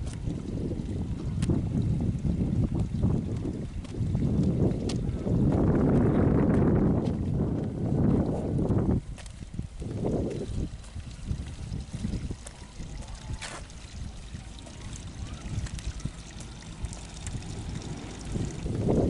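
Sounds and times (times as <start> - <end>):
wind rumble on microphone: 0.0 - 19.0
footsteps on gravel: 3.8 - 11.0, 11.9 - 13.8.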